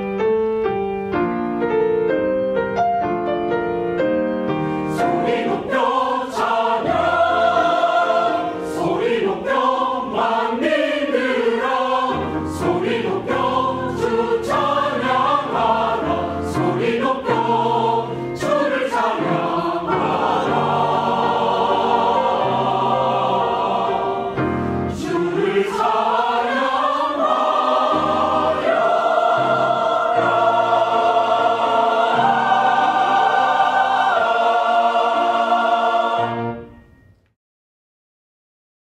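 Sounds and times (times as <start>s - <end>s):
choir singing a hymn: 4.7s - 36.8s.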